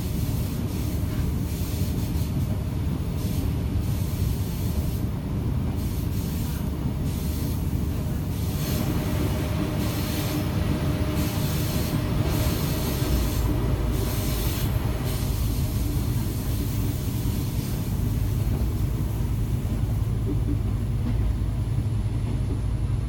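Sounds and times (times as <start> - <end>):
train engine and wheels rumbling: 0.0 - 23.0.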